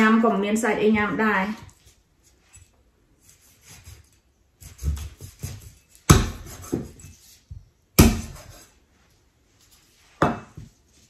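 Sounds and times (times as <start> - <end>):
cleaver chopping on wooden block: 4.7 - 6.9, 8.0 - 8.5.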